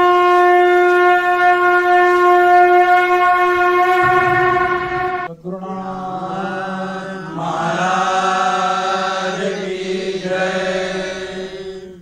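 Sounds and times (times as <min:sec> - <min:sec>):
men chanting in unison: 0:05.3 - 0:12.0.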